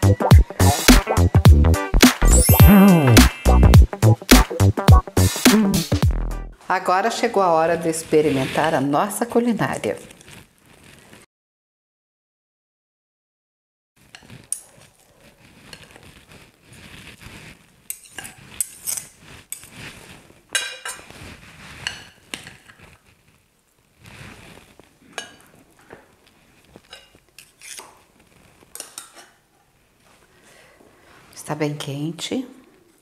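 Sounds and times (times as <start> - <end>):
cutlery clinking on glass dish: 20.6 - 21.0, 25.2 - 25.5.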